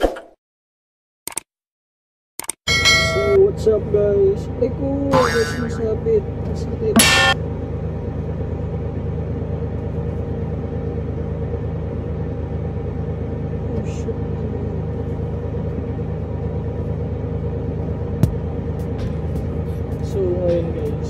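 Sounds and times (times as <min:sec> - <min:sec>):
loader engine rumbling: 0:02.7 - 0:21.0
sharp knock: 0:07.0 - 0:07.4.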